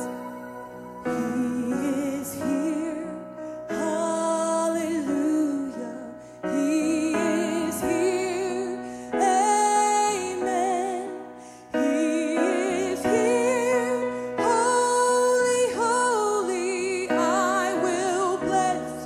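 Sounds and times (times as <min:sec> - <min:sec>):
instrumental accompaniment: 0:00.0 - 0:03.6
woman singing gospel song: 0:00.0 - 0:19.0.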